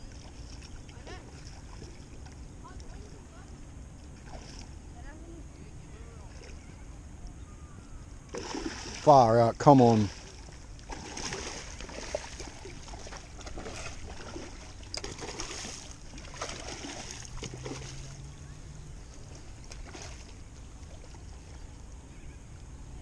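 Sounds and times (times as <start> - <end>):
fish splashing on water surface: 8.3 - 9.1, 9.8 - 18.2.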